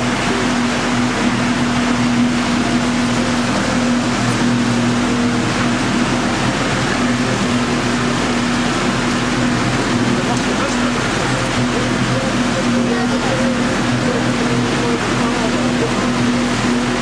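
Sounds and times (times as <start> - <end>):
boat motor running: 0.0 - 17.0.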